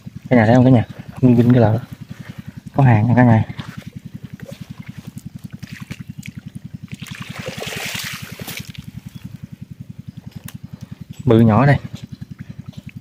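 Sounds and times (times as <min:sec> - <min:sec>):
low pulsing throb: 0:00.0 - 0:13.0
water pouring off fish trap: 0:06.9 - 0:08.9.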